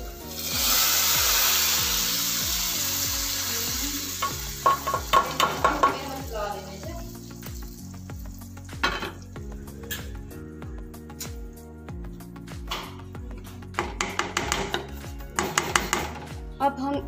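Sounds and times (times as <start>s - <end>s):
hot oil sizzling in a pot: 0.0s - 11.6s.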